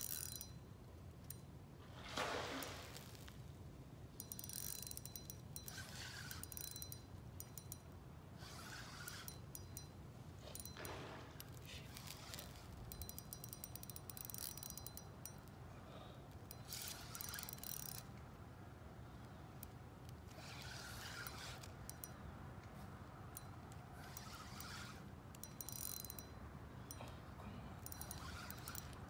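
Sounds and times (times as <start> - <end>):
fishing reel ticking whir: 0.0 - 0.6, 4.2 - 15.6, 16.3 - 18.2, 19.5 - 22.2, 23.3 - 27.0, 27.8 - 29.0.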